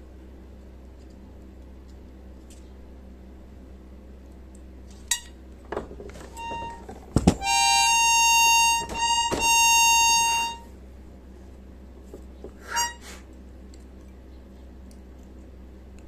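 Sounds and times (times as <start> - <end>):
buzzy high accordion reed note: 6.4 - 6.8, 7.4 - 10.7, 12.6 - 13.2.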